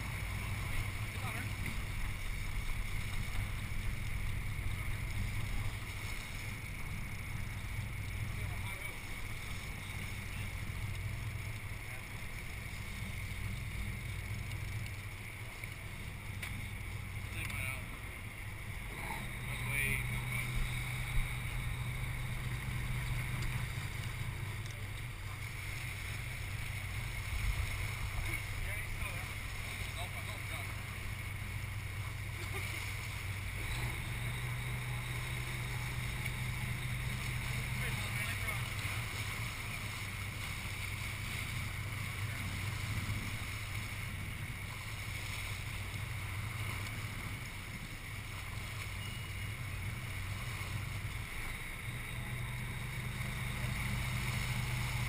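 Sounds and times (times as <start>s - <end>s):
boat engine droning: 0.0s - 55.0s
hiss of wind and water: 0.0s - 55.0s.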